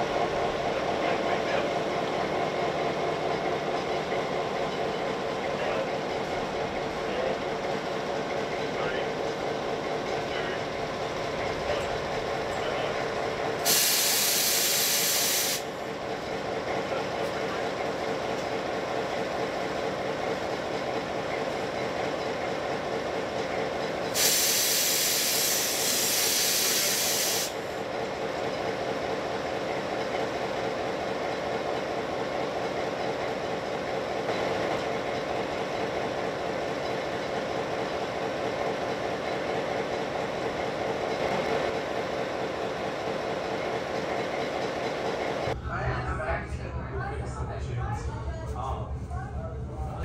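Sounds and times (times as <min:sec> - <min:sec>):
diesel locomotive idling: 0:00.0 - 0:50.0
compressed air hiss: 0:13.6 - 0:15.7, 0:24.2 - 0:27.6.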